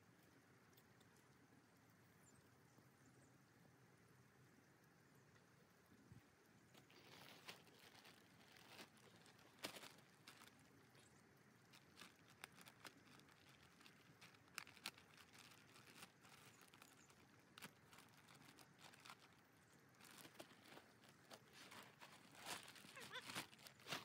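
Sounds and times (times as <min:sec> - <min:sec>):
soft clicks and crackles: 0:00.0 - 0:02.9, 0:04.7 - 0:24.0
plastic bag crinkling: 0:06.8 - 0:24.0.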